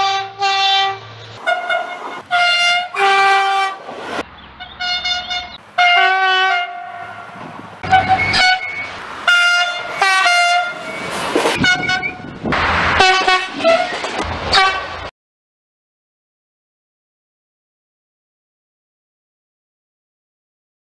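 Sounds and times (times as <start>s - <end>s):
train horn blasts: 0.0s - 3.8s, 4.6s - 11.0s, 11.6s - 12.2s, 13.0s - 15.1s
passing train rushing: 0.0s - 15.1s.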